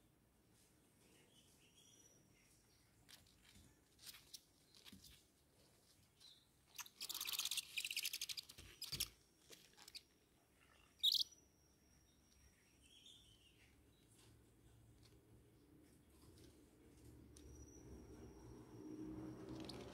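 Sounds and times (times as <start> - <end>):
owl chicks calling: 10.8 - 11.4.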